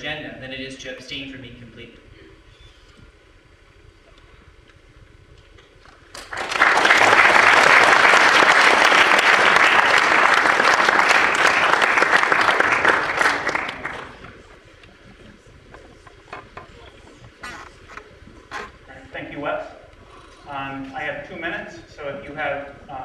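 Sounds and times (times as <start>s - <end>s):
audience applauding: 5.9s - 14.6s.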